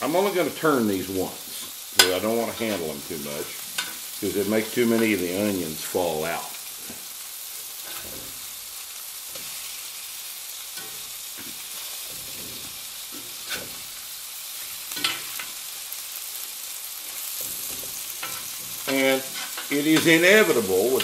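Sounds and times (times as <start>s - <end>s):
meat sizzling in a pan: 0.0s - 21.0s
metal spatula scraping pan: 3.6s - 4.3s, 7.7s - 8.5s, 10.8s - 15.7s, 17.1s - 21.0s.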